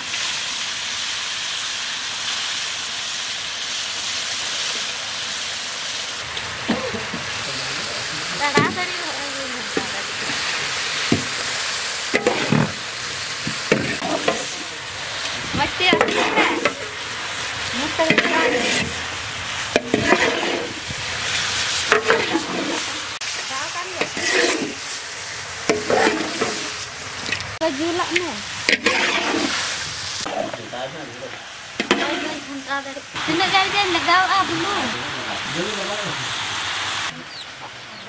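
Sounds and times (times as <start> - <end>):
meat sizzling in a pan: 0.0 - 37.6
metal spatula scraping pan: 12.1 - 14.8, 15.8 - 17.0, 17.8 - 19.1, 19.7 - 20.9, 21.9 - 23.0, 23.8 - 25.0, 25.7 - 27.4, 28.1 - 29.7, 31.8 - 32.6.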